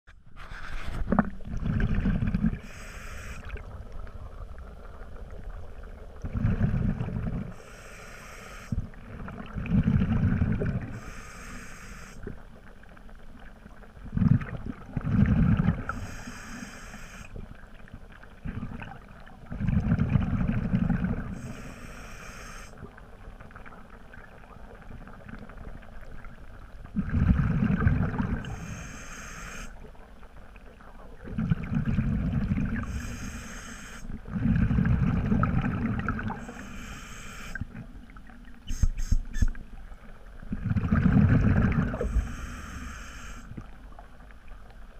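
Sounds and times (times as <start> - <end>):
bubbling exhale underwater: 1.0 - 4.5, 5.2 - 7.6, 8.7 - 11.2, 14.0 - 16.2, 18.4 - 21.7, 26.9 - 28.8, 31.2 - 33.4, 34.1 - 36.7, 40.4 - 43.8
regulator hiss on inhale: 2.6 - 3.6, 7.5 - 8.9, 10.9 - 12.3, 15.9 - 17.4, 21.4 - 22.9, 28.4 - 29.8, 32.8 - 34.2, 36.3 - 37.7, 38.7 - 39.6, 41.9 - 43.7.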